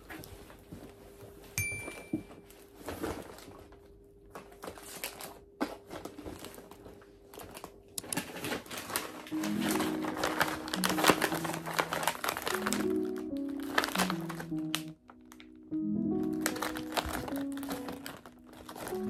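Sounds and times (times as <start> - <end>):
high beep: 1.6 - 2.2
shopping bag rustling: 2.3 - 19.0.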